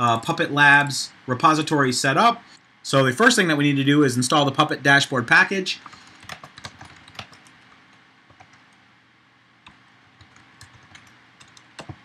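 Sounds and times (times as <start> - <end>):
typing on computer keyboard: 5.8 - 7.7, 8.3 - 8.6, 9.6 - 12.0.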